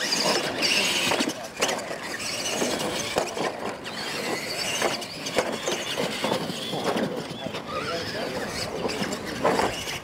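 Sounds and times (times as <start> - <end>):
toy truck motors whining: 0.0 - 10.0
tyres churning dirt: 0.0 - 10.0.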